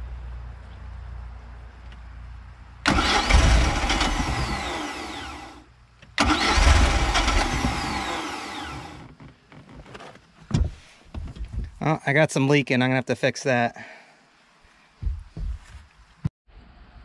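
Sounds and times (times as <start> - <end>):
boat engine cranking on starter: 2.9 - 5.6, 6.2 - 9.2.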